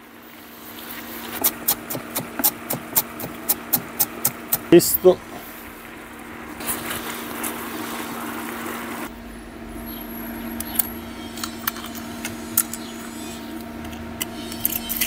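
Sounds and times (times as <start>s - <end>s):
low hum: 3.9s - 15.0s
risotto hissing in a pan: 5.2s - 9.1s.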